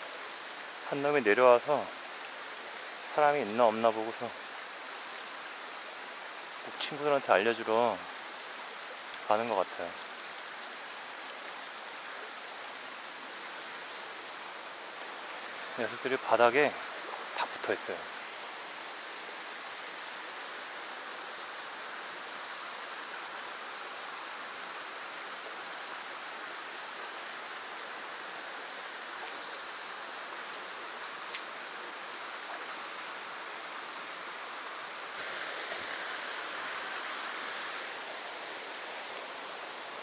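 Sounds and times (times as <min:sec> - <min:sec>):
stream rushing over stones: 0:00.0 - 0:40.0.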